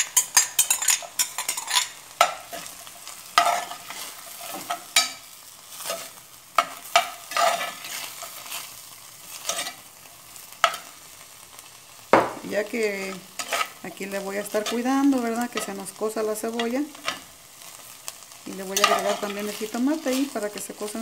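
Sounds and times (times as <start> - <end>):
spoon scraping pot: 0.0 - 2.7, 13.4 - 13.8
meat sizzling: 0.0 - 21.0.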